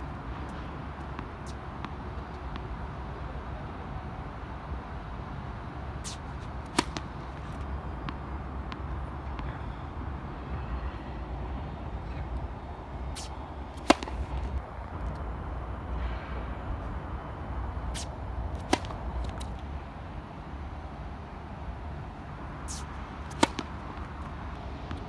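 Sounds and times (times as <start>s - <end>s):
low city rumble: 0.0s - 25.0s
tennis racket striking ball: 6.0s - 8.8s, 13.2s - 14.6s, 18.0s - 19.6s, 22.7s - 24.3s.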